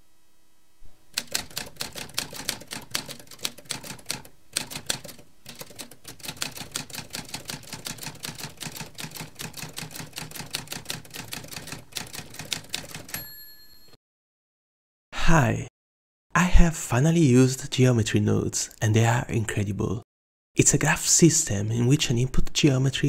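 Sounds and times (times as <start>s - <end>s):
typewriter keys clacking: 1.2s - 13.2s.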